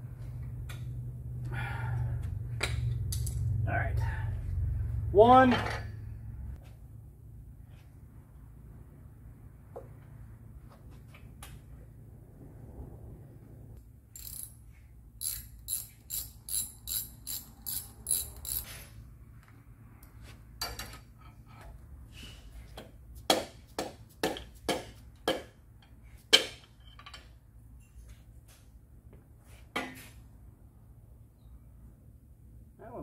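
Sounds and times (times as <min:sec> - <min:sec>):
ratchet wrench clicking: 0:14.2 - 0:14.6, 0:15.2 - 0:18.7.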